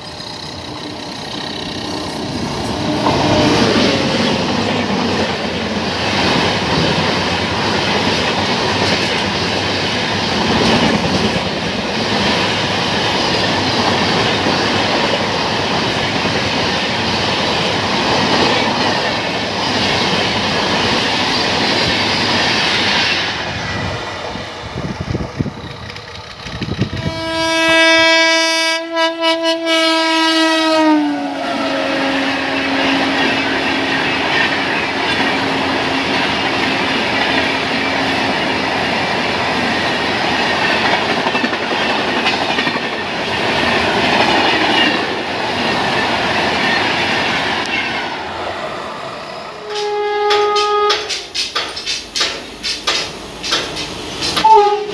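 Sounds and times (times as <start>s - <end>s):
train horn blast: 2.8s - 3.9s, 26.9s - 33.9s, 49.6s - 51.2s, 54.4s - 54.9s
train wheels clattering over rail joints: 25.1s - 27.1s, 49.8s - 54.5s.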